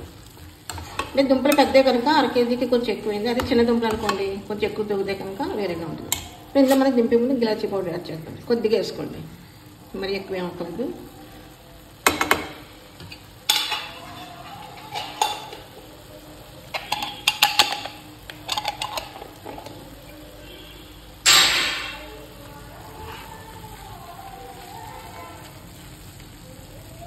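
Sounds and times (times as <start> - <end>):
spoon clanking on pan: 0.6 - 4.4, 6.1 - 6.9, 12.0 - 15.8, 16.7 - 19.8
spoon clinking and scraping pan: 13.1 - 15.7, 16.7 - 19.7.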